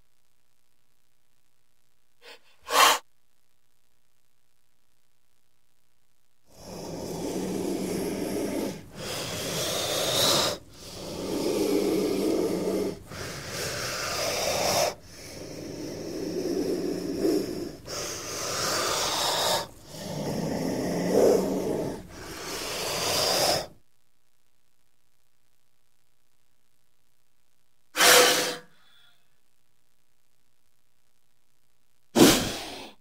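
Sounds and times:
snake hissing: 2.2s - 3.0s, 6.5s - 23.7s, 28.0s - 28.8s, 32.2s - 33.0s.

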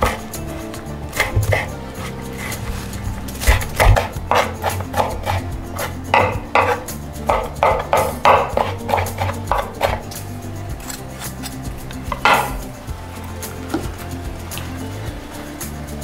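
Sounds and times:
knife chopping on wooden board: 3.4s - 10.0s.

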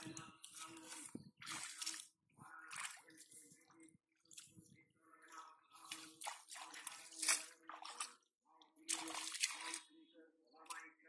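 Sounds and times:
hands splashing in muddy water: 0.0s - 3.6s, 5.8s - 8.2s, 8.8s - 9.9s.

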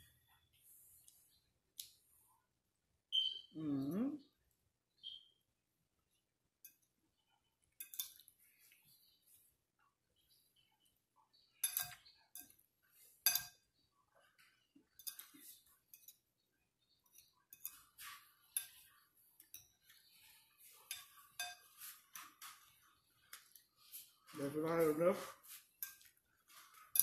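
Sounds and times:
metal fork scraping a plate: 17.1s - 23.0s.

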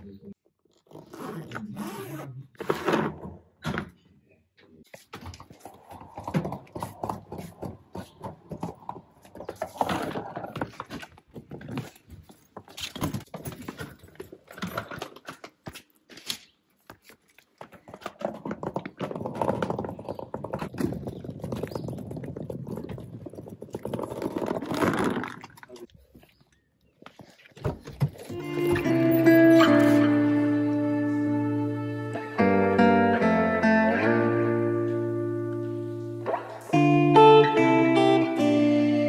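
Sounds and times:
suitcase wheels rattling over tiles: 5.6s - 15.6s, 17.7s - 25.7s.

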